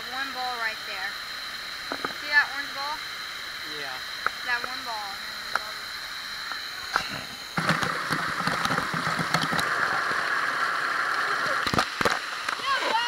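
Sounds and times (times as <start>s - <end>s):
water rushing over rocks: 7.6s - 13.0s.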